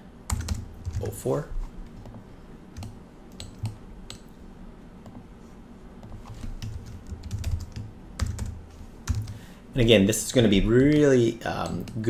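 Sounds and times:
keyboard typing: 0:00.3 - 0:01.2, 0:01.8 - 0:04.3, 0:06.0 - 0:09.4.

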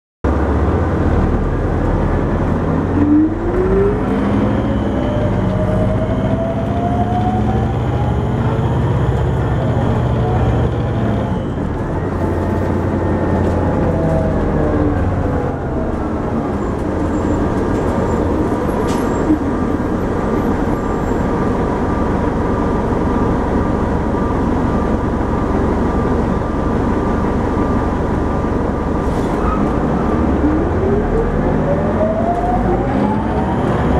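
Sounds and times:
bus engine and road rumble: 0:00.2 - 0:33.9
rising whine: 0:00.9 - 0:18.6, 0:19.3 - 0:33.9.

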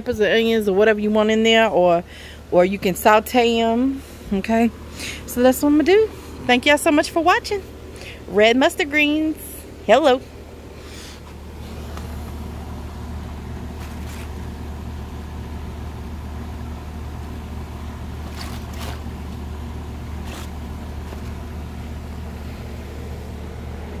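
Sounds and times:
motor humming: 0:04.0 - 0:24.0
handling noises: 0:11.1 - 0:14.9, 0:17.2 - 0:22.4.

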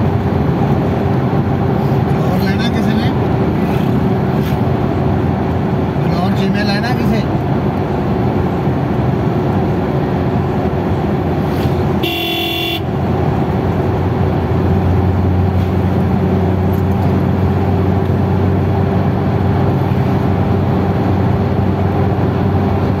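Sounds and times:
engine and road noise in car: 0:00.0 - 0:23.0
vehicle horn: 0:12.0 - 0:13.1.

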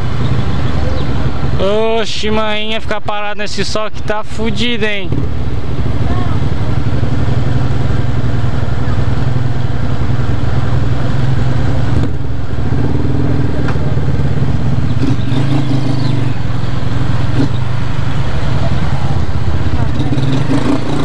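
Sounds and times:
another motorcycle engine: 0:04.9 - 0:21.0
motorcycle engine running: 0:05.1 - 0:21.0.

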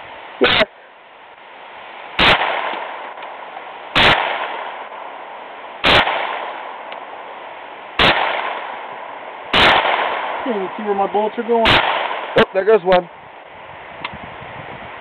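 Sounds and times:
pistol shots: 0:02.2 - 0:03.0, 0:03.9 - 0:04.9, 0:05.8 - 0:06.8, 0:08.0 - 0:10.5, 0:11.6 - 0:12.5.

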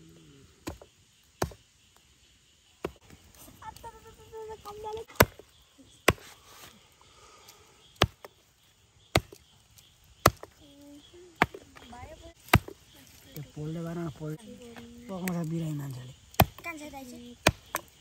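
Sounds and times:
blade chopping on wood: 0:00.6 - 0:01.6, 0:05.2 - 0:06.3, 0:08.0 - 0:08.4, 0:09.1 - 0:09.4, 0:10.2 - 0:10.6, 0:11.4 - 0:12.8, 0:16.3 - 0:16.6, 0:17.4 - 0:18.0.

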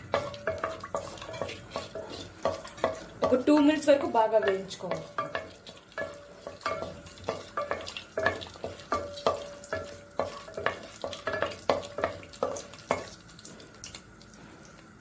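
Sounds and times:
spatula scraping ringing pan: 0:00.0 - 0:13.3
spices sizzling in oil: 0:00.0 - 0:15.0.

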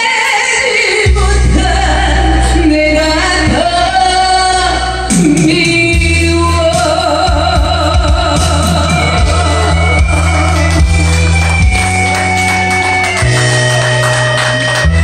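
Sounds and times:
woman singing into microphone: 0:00.0 - 0:10.8
backing music: 0:01.1 - 0:15.0.

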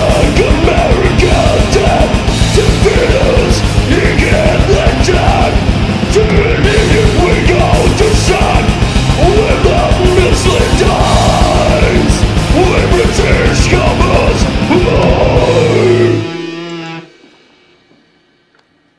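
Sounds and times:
fast drumming: 0:00.0 - 0:16.1
harsh yelled vocals: 0:00.0 - 0:16.6
distorted guitars: 0:00.0 - 0:18.4.

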